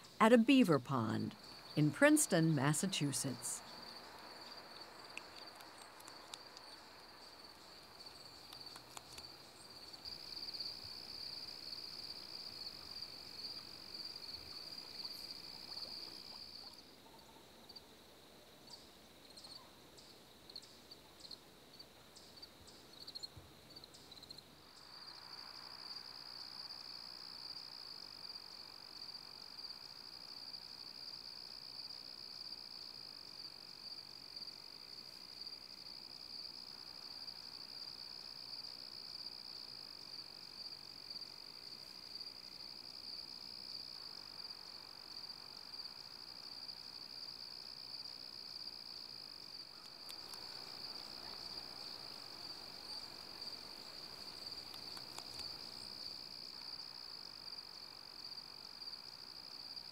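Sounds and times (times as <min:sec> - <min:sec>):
insects trilling: 0:22.4 - 0:59.9.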